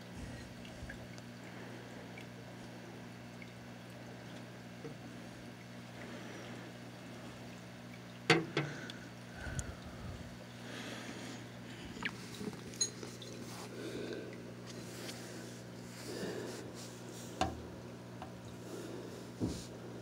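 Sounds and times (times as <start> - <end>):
low hum: 8.5 - 16.8.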